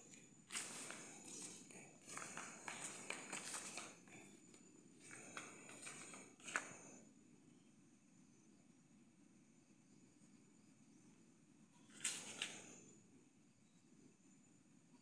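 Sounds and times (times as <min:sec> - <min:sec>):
faint footsteps and scuffing: 0:00.0 - 0:04.0.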